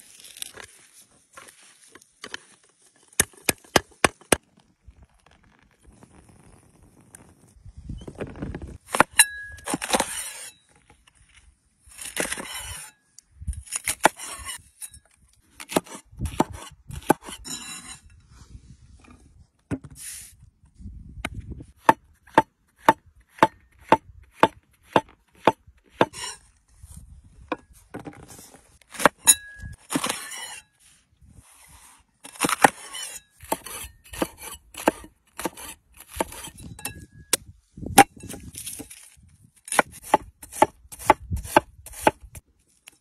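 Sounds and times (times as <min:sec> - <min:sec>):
knife chopping on wooden board: 0:39.7 - 0:42.2.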